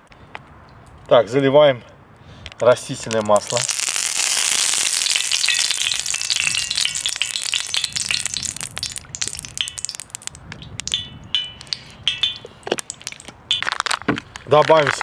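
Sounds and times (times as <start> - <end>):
oil sizzling in frying pan: 3.4 - 10.3.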